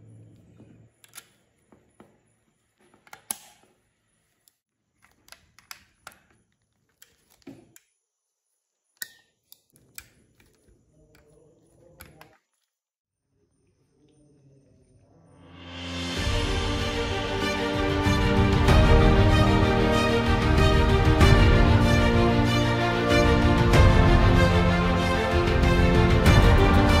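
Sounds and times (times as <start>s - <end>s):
plastic parts clicking and tapping: 4.4s - 7.9s.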